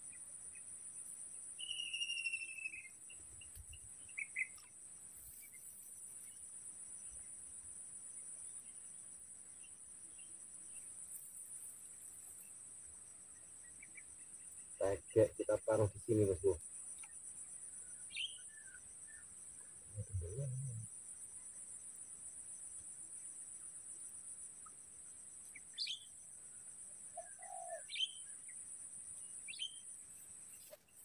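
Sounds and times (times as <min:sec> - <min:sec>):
crickets chirping: 0:00.0 - 0:31.0
bird whistle: 0:01.6 - 0:02.9
bird chirps: 0:01.6 - 0:06.4, 0:17.9 - 0:19.3, 0:25.5 - 0:26.2, 0:27.2 - 0:28.6, 0:29.4 - 0:31.0.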